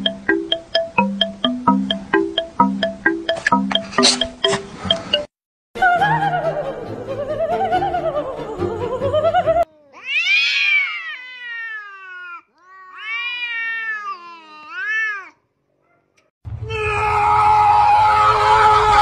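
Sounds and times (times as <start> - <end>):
background music: 0.0 - 9.6
cats yowling: 9.6 - 15.4.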